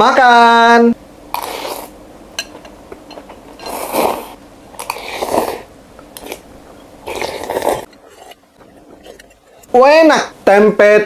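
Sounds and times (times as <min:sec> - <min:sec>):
slurping noodles and broth: 0:01.3 - 0:02.0, 0:03.6 - 0:09.7.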